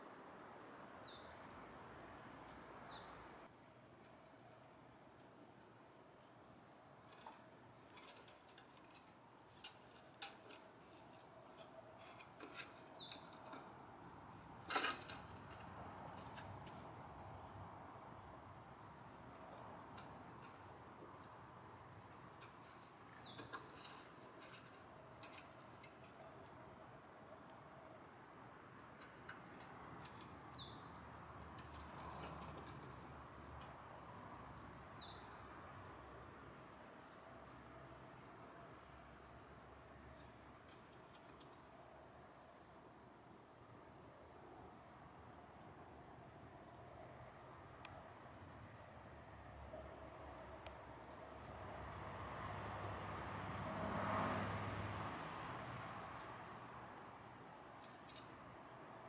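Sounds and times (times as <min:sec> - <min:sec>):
claws scratching on wooden ladder: 0:07.0 - 0:17.2, 0:22.0 - 0:26.6, 0:29.0 - 0:33.8.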